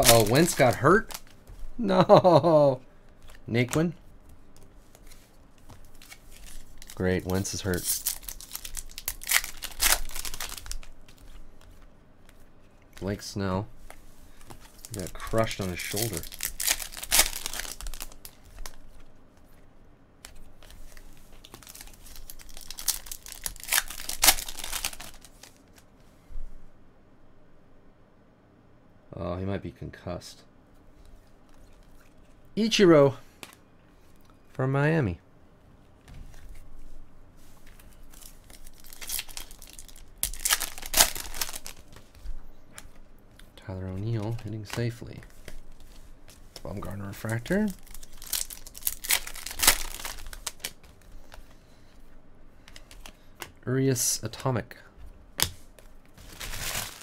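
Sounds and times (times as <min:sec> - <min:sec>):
foil wrapper crinkling: 0:00.0 - 0:01.4, 0:05.0 - 0:11.7, 0:14.4 - 0:19.0, 0:20.6 - 0:25.8, 0:37.8 - 0:43.1, 0:44.0 - 0:51.4, 0:56.1 - 0:57.0
cards being handled: 0:00.0 - 0:01.7, 0:03.0 - 0:19.6, 0:20.2 - 0:25.9, 0:36.1 - 0:51.6, 0:52.6 - 0:53.6.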